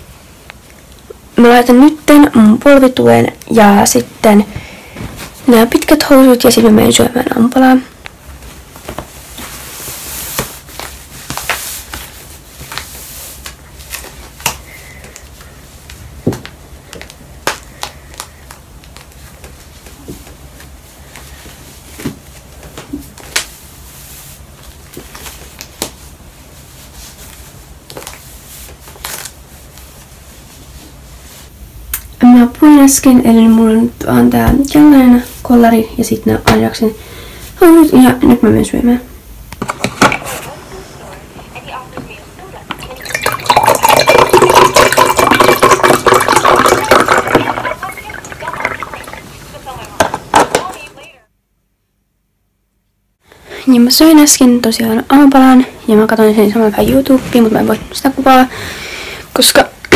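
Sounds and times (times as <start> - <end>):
rustling of knee brace and clothing: 8.0 - 31.5
juice pouring into glass: 42.8 - 49.4.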